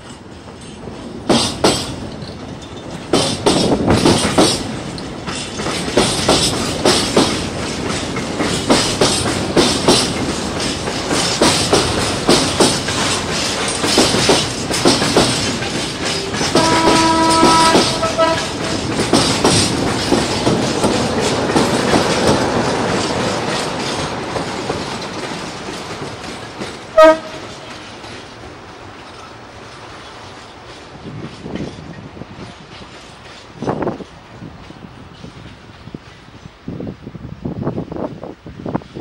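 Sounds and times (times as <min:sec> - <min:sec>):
wheels clicking over rail joints: 0:00.0 - 0:36.6
freight train rolling past: 0:00.0 - 0:39.0
train horn tone: 0:16.2 - 0:18.8, 0:26.9 - 0:27.7.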